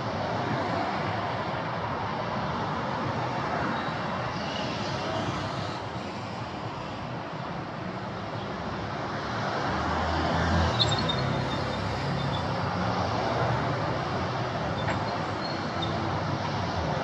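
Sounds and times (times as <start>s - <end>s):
passing traffic: 0.0s - 17.0s.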